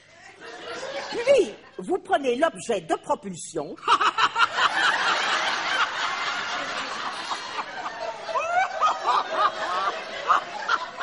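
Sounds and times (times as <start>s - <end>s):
audience laughing: 0.3s - 1.6s, 3.8s - 11.0s
individual loud laughs: 6.6s - 11.0s.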